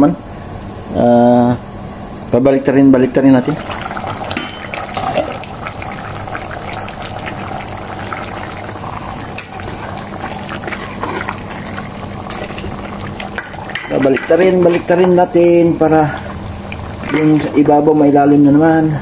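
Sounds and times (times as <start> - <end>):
sauce bubbling in a pot: 3.1 - 18.3.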